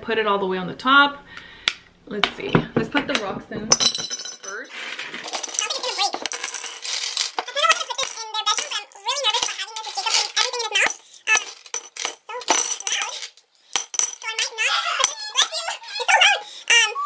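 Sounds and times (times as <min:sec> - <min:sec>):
baby babbling: 0:14.2 - 0:17.0.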